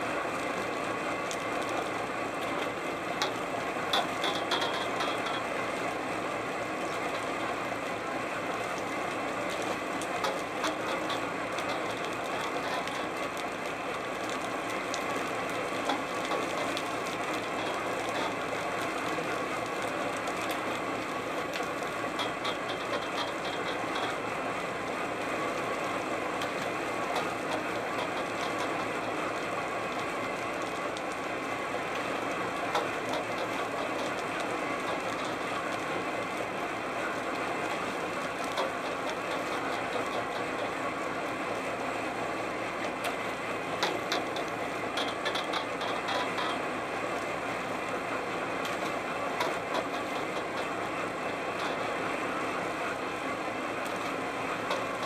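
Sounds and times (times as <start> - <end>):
rapid rattling clicks: 1.3 - 5.4.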